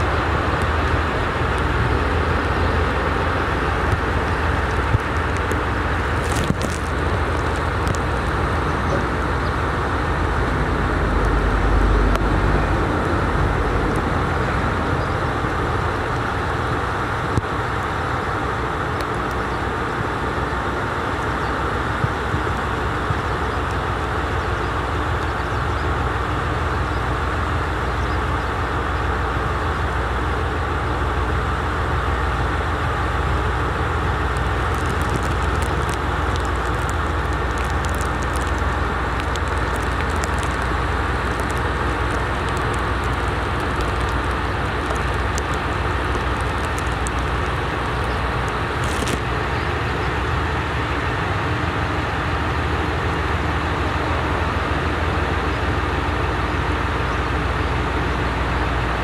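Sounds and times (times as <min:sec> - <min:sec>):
diesel train rumbling: 0:00.0 - 0:59.0
light ticks: 0:03.8 - 0:09.6, 0:34.3 - 0:49.3.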